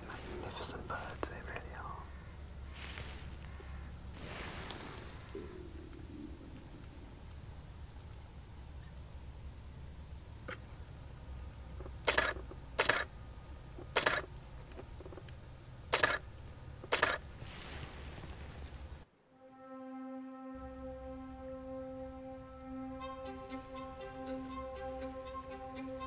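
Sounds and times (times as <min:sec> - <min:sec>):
low outdoor rumble: 0:00.0 - 0:19.1
small bird calling: 0:04.6 - 0:17.2, 0:18.0 - 0:19.1, 0:20.6 - 0:26.0
camera shutter bursts: 0:12.0 - 0:13.1, 0:13.9 - 0:14.3, 0:15.9 - 0:17.2.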